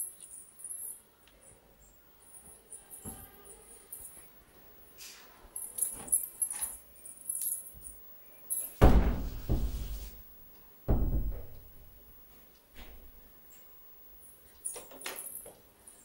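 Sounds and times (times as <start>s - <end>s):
heavy thuds: 8.8s - 10.2s, 10.9s - 12.1s.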